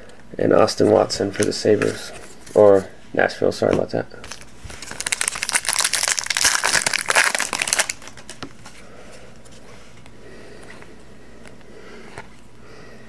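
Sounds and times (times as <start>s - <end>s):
card pack wrapper crinkling: 4.2s - 8.5s.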